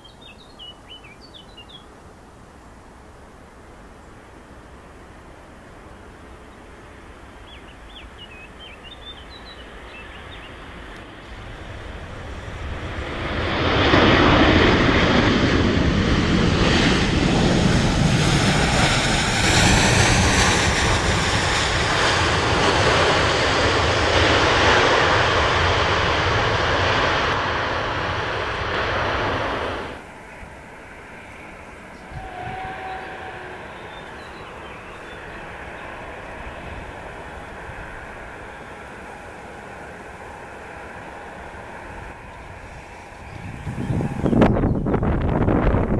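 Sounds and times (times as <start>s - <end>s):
birds chirping: 0.0s - 2.0s, 7.3s - 11.0s, 31.1s - 36.6s, 41.0s - 45.0s
jet engines roaring: 8.0s - 45.9s.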